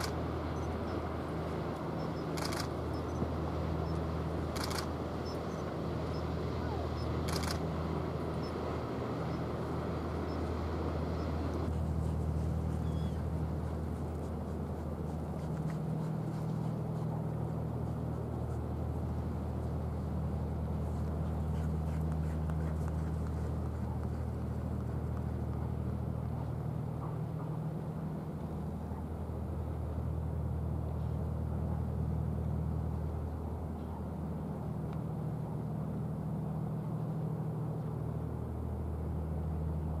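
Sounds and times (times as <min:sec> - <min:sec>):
broad rushing noise: 0:00.0 - 0:27.8
low engine drone: 0:00.0 - 0:40.0.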